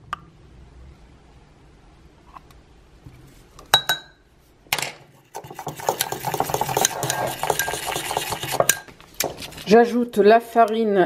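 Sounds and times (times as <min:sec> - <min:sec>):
fork stirring and scraping mug: 0:05.1 - 0:09.8.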